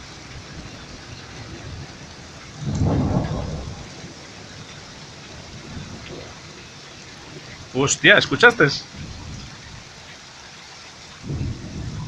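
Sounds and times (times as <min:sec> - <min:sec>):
steady rain: 0:00.0 - 0:12.0
thunder clap: 0:02.5 - 0:04.6, 0:11.2 - 0:12.0.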